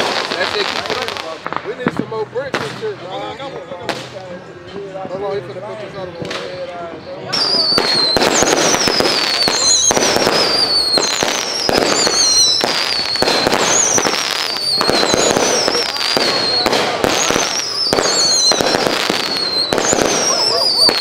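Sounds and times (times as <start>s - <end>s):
firework crackling: 0.0s - 3.0s, 7.3s - 21.0s
firework whistles falling in pitch: 7.3s - 21.0s.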